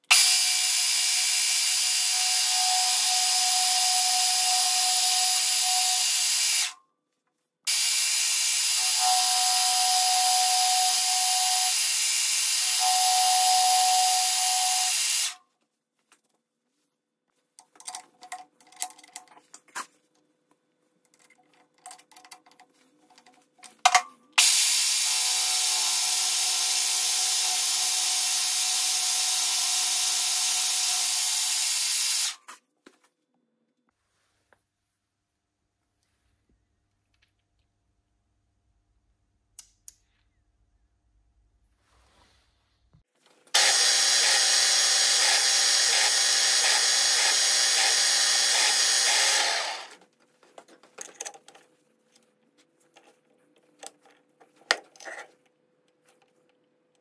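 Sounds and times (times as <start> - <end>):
milling machine cutting metal: 43.6 - 49.9.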